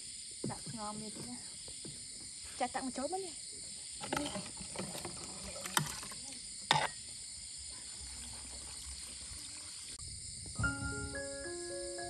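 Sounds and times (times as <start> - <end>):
water pouring into pot: 4.5 - 6.3, 7.9 - 10.0.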